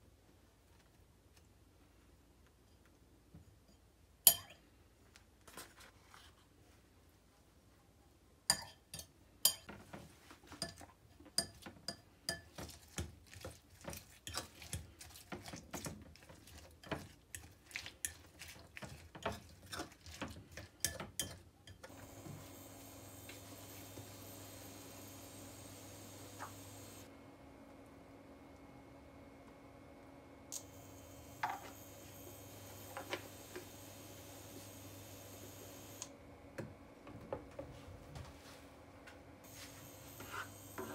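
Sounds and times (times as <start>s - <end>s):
soft wet stirring: 8.5s - 22.4s
steady hum: 21.9s - 40.9s.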